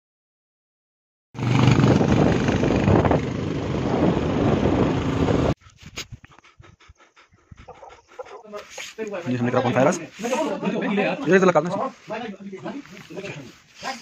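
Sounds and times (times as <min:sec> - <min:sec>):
motorcycle engine running: 0:01.4 - 0:05.6
wind noise on microphone: 0:01.4 - 0:08.0.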